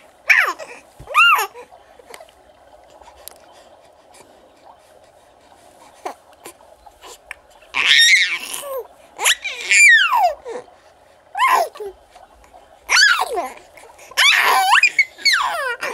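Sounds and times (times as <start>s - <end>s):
baby squealing and laughing: 0.3s - 1.6s, 7.8s - 10.4s, 12.9s - 13.6s, 14.2s - 15.9s.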